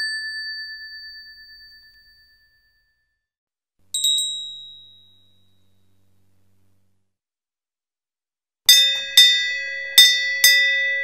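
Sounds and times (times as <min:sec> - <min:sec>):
faint low hum: 0:03.8 - 0:07.2
higher-pitched temple bell: 0:08.7 - 0:11.0
temple bell ringing: 0:08.7 - 0:11.0.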